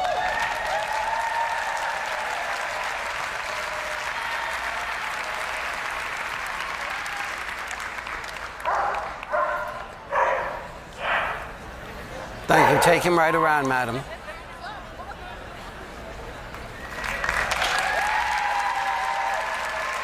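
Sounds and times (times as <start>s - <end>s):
audience applauding and cheering: 0.0s - 9.9s, 16.5s - 20.0s.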